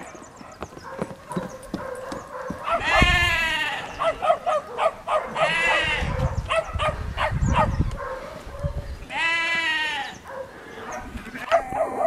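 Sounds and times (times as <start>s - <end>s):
puppies yapping: 0.0s - 12.0s
sheep bleating: 2.8s - 4.0s, 5.4s - 6.1s, 9.1s - 10.2s.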